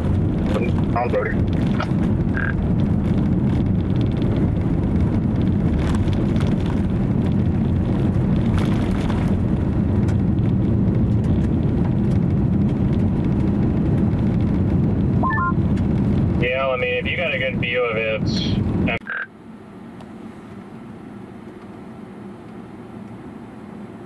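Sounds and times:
wind rumble on microphone: 0.0s - 19.0s.

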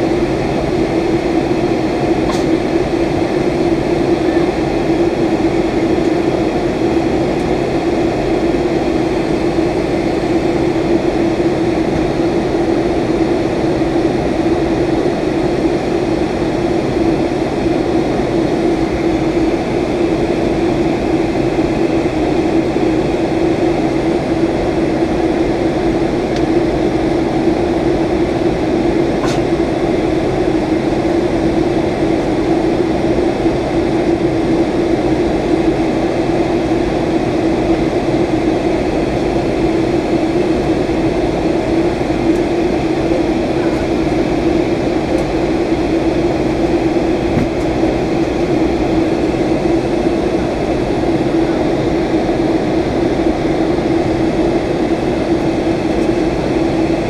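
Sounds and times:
airplane cabin airflow and engine drone: 0.0s - 57.0s
steady hum: 0.0s - 57.0s.

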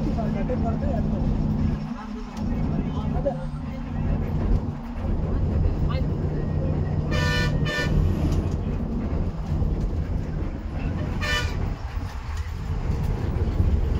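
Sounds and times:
bus engine and road rumble: 0.0s - 13.9s
vehicle horn honking: 7.1s - 8.1s, 11.1s - 11.6s.

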